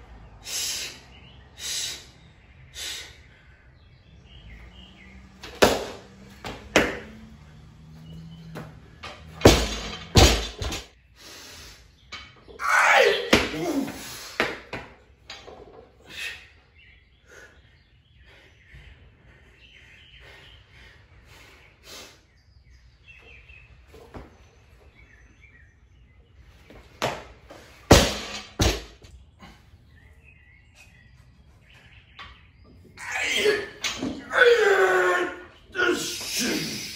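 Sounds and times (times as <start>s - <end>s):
barbell thudding on concrete: 5.4s - 7.1s, 8.5s - 10.9s, 27.0s - 29.1s
person yelling with strain: 12.6s - 14.0s, 33.0s - 36.9s.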